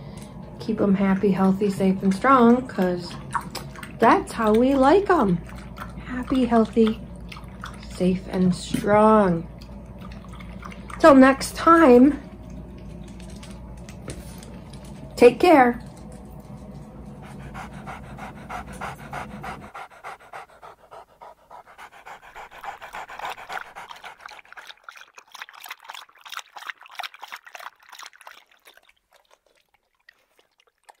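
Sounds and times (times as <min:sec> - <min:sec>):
dog panting: 0:17.0 - 0:24.9.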